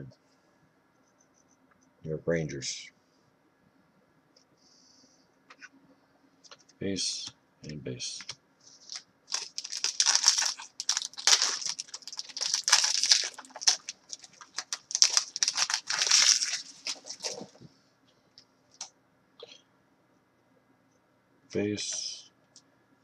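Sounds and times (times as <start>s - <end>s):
wrapper tearing and crinkling: 8.8s - 17.6s.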